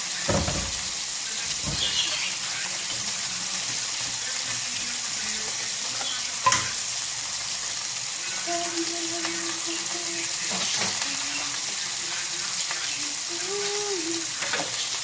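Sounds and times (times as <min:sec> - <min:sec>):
food sizzling in frying pan: 0:00.0 - 0:15.0
knock: 0:00.3 - 0:00.8.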